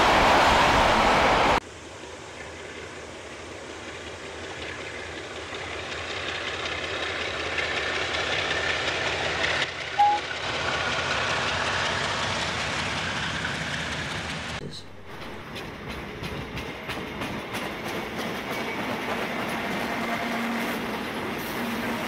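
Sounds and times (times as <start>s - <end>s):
train running past: 0.0s - 22.0s
short high peep: 10.0s - 10.2s.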